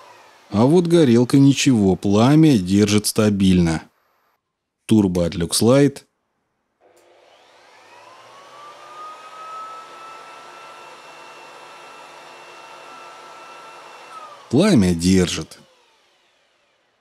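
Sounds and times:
leaf blower motor whine: 0:00.0 - 0:02.3, 0:06.8 - 0:17.0.

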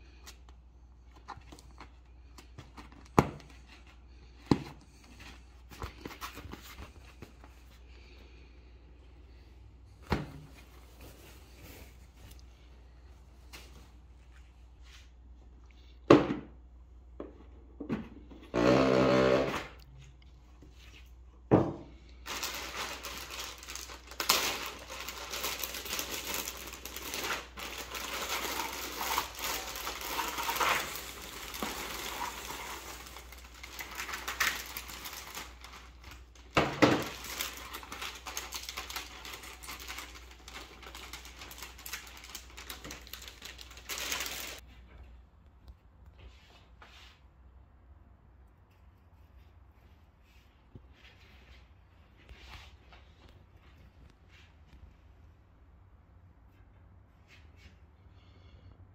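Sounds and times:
plastic bag rustling: 0:22.2 - 0:44.6.

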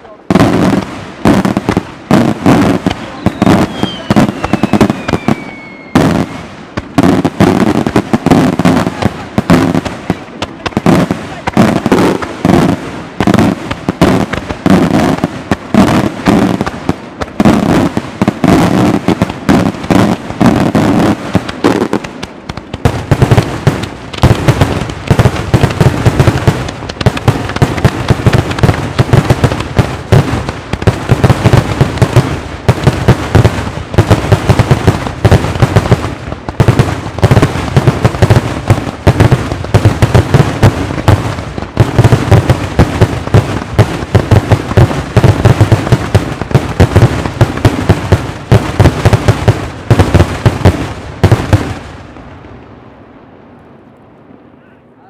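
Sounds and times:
fireworks bangs: 0:00.0 - 0:53.3
falling firework whistle: 0:03.0 - 0:06.5.

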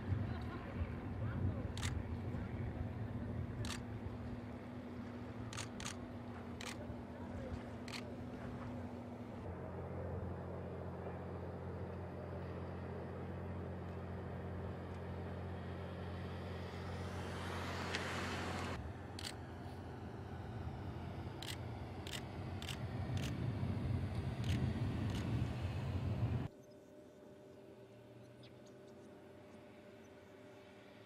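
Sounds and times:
car engine hum: 0:14.5 - 0:26.5
car driving by: 0:16.4 - 0:18.8.

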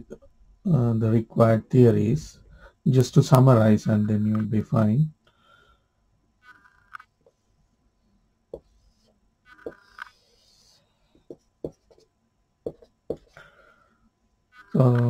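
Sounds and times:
marker pen scratchy strokes: 0:06.4 - 0:07.5, 0:08.6 - 0:12.1, 0:12.7 - 0:13.4, 0:14.5 - 0:14.8
marker tip tapping board: 0:09.5 - 0:10.2, 0:12.6 - 0:13.3.

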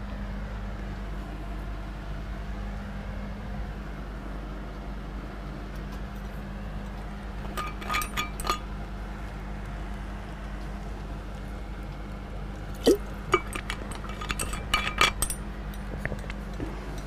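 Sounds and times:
low electrical hum: 0:00.0 - 0:17.0
light ringing clinks: 0:07.5 - 0:08.7, 0:12.8 - 0:16.4.

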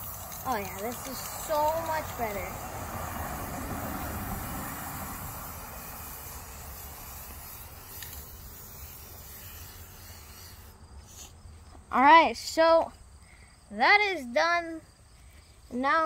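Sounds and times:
spray paint can hissing: 0:00.0 - 0:11.4.

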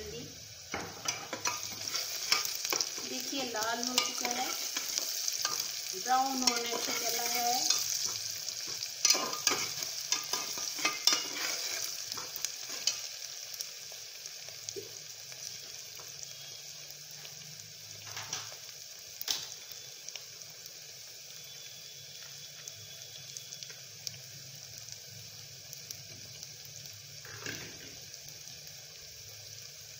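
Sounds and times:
onions sizzling in oil: 0:00.0 - 0:29.9
spatula scraping a pan: 0:00.8 - 0:13.1.

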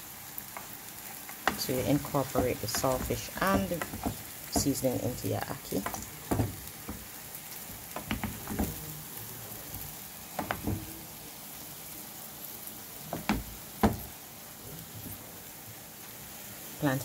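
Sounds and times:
food sizzling in a frying pan: 0:00.0 - 0:17.0
wooden spoon knocking and scraping pan: 0:00.5 - 0:08.9, 0:10.3 - 0:11.0, 0:13.1 - 0:14.1.

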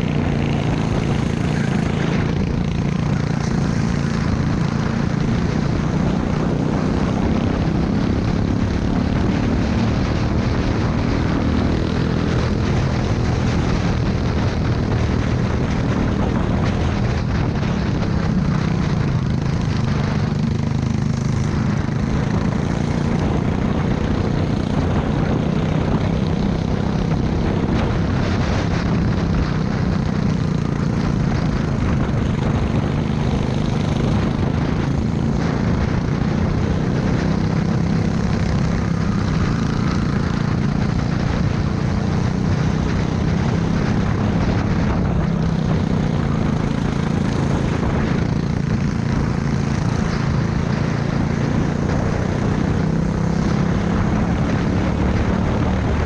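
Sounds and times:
go-kart engine running hard: 0:00.0 - 0:56.0.

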